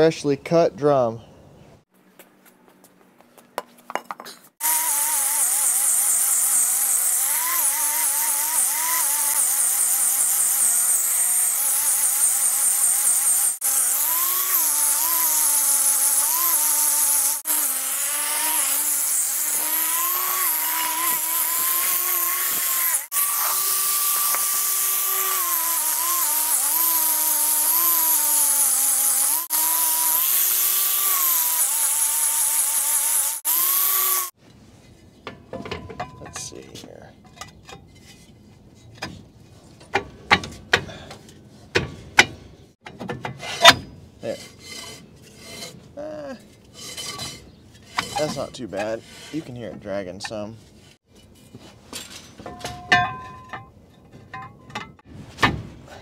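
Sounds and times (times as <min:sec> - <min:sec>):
power tool grinding metal: 0:04.6 - 0:34.4, 0:46.6 - 0:51.0.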